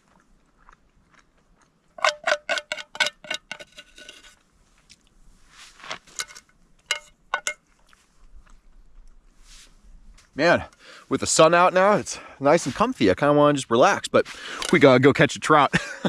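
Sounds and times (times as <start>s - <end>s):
utensil scraping pan: 2.0s - 4.4s.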